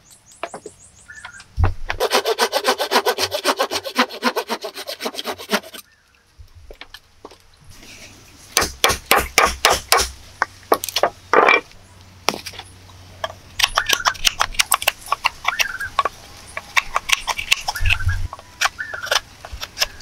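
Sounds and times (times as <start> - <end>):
blade scraping wood: 1.9 - 5.9, 13.6 - 20.0
blade chopping wood: 8.6 - 10.1.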